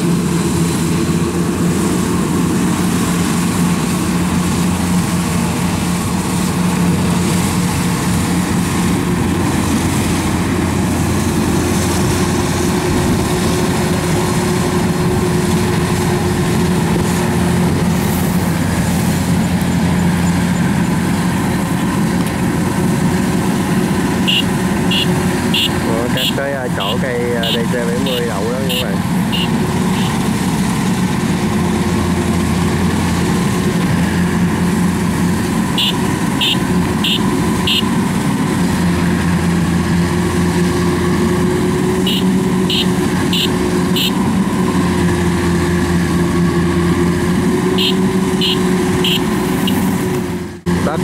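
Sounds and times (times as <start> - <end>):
combine harvester diesel engine hum: 0.0 - 51.0.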